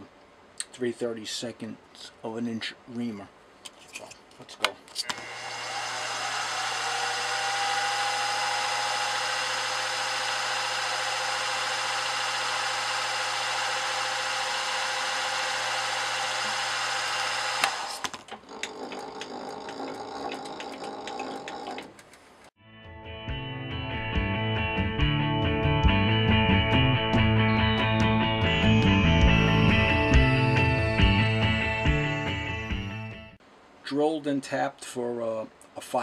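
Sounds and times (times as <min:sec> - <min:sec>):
milling machine spindle running: 0:05.1 - 0:22.0
clicking and rattling: 0:18.0 - 0:22.4.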